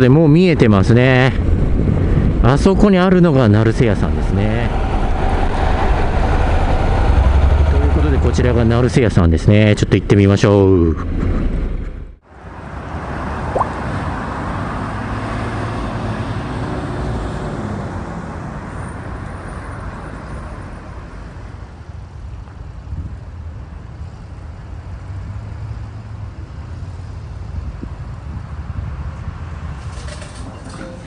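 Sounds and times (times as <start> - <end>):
traffic rumble: 0.0 - 31.0
large vehicle passing: 3.9 - 9.1.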